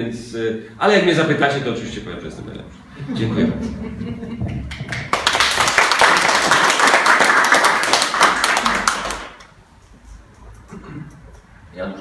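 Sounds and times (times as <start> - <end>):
audience applauding: 4.6 - 9.5.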